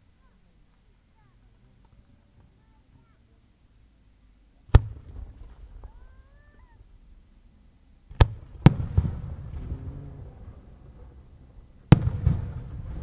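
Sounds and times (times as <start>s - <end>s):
faint crackle: 0.0s - 13.0s
firework deep boom: 4.7s - 6.0s, 8.1s - 13.0s
rolling rumble: 4.7s - 13.0s.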